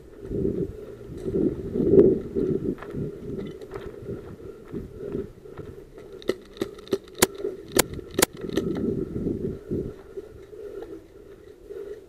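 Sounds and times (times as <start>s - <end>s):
sharp clicks or snaps: 6.2s - 8.8s.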